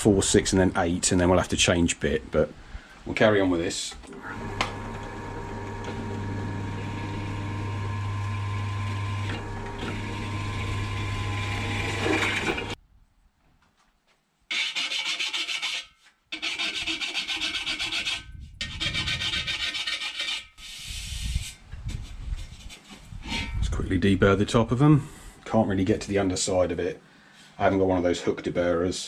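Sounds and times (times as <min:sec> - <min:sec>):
pillar drill cutting steel: 0:04.1 - 0:12.8
hand file on steel: 0:14.5 - 0:23.5.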